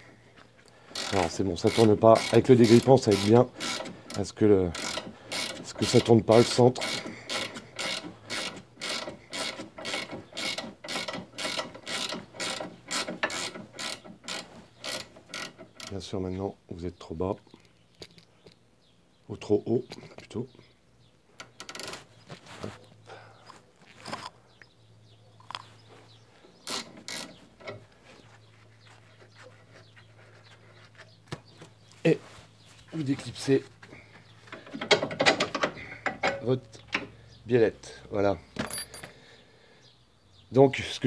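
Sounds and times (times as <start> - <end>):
ratchet wrench clicking: 0.9 - 15.9.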